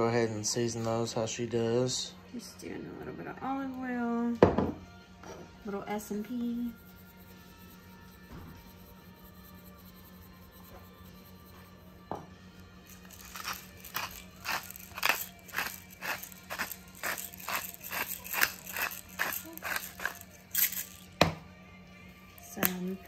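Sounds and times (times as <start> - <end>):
knock: 4.4 - 4.8
pepper mill grinding: 6.0 - 11.8, 12.8 - 21.2, 22.3 - 23.0.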